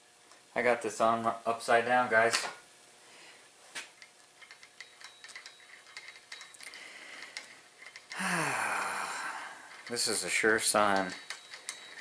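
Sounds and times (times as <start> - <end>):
metallic clicks and taps: 10.9 - 12.0.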